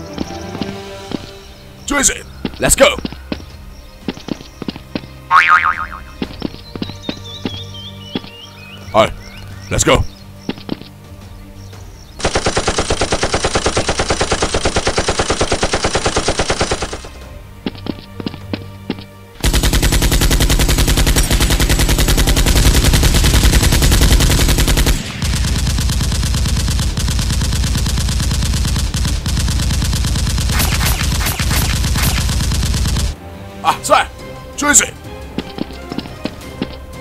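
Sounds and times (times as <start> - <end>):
automatic gunfire sound effects: 12.2 - 17.2, 19.4 - 33.2
toy blasters firing: 19.4 - 33.2.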